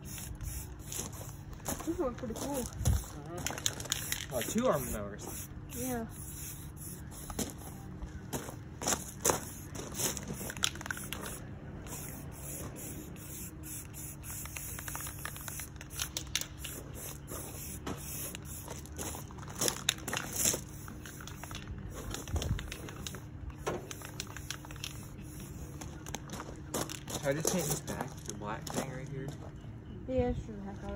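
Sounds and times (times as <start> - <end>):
spray-paint can hissing: 0.0 - 1.5, 2.9 - 7.7, 8.9 - 26.2.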